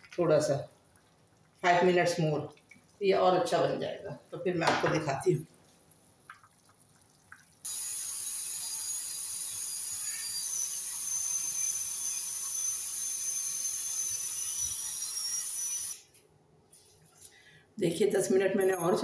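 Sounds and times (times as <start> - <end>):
pressure cooker hissing: 7.7 - 16.1.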